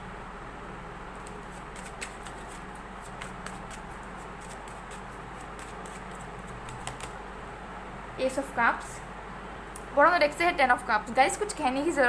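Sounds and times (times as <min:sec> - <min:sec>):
cards being shuffled: 0:01.2 - 0:07.2.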